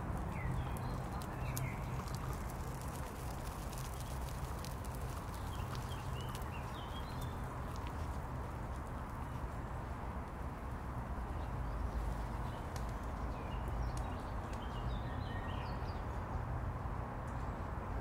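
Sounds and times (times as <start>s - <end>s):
small birds chirping: 0.0s - 8.5s, 11.2s - 16.3s
distant city traffic rumble: 0.0s - 18.0s.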